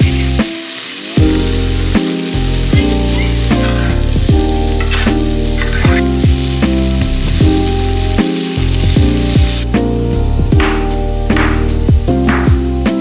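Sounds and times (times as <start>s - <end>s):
music with heavy bass: 0.0s - 0.6s, 1.2s - 13.0s
vegetables sizzling in oil: 0.0s - 13.0s
spatula stirring in pan: 0.7s - 9.6s.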